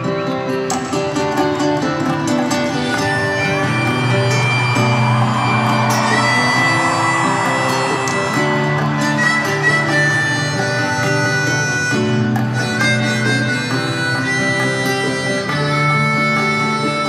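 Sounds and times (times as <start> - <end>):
live band music over pa: 0.0 - 17.0.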